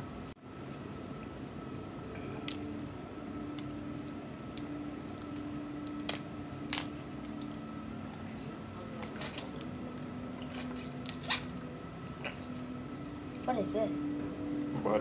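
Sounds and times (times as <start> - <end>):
faint steady hum: 0.0 - 15.0
wet squishing and chewing: 3.6 - 13.5.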